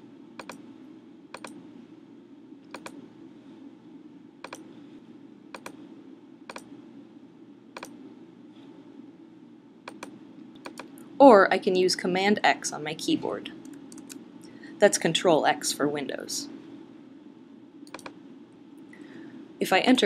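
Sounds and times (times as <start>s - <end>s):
faint room hum: 0.0s - 20.0s
computer mouse clicking: 0.4s - 0.6s, 1.3s - 1.6s, 2.6s - 3.0s, 4.4s - 4.7s, 5.5s - 5.8s, 6.5s - 6.7s, 7.8s - 8.0s, 9.8s - 11.0s, 13.6s - 14.2s, 17.8s - 18.2s.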